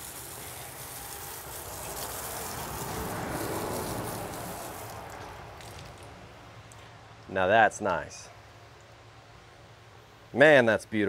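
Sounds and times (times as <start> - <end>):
hose water spraying on wood: 0.0 - 6.8.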